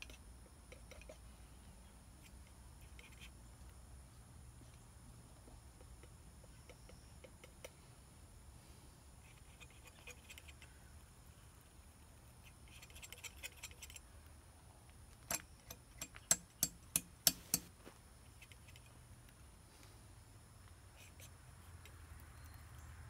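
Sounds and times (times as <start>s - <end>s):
palette knife scratchy clicks: 12.7s - 14.0s.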